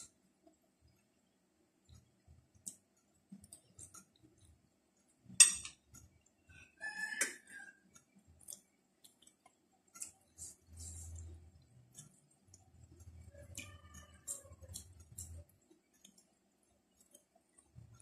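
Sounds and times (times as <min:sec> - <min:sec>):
mouth clicks and chewing: 0:05.8 - 0:18.0.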